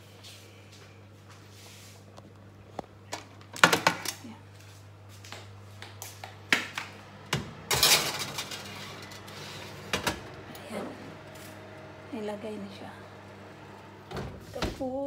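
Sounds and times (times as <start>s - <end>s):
metal baking tray clattering: 7.7s - 9.3s.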